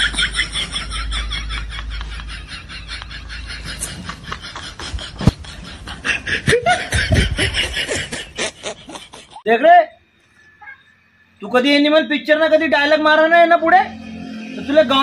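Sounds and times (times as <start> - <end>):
person snickering: 1.6 - 9.4.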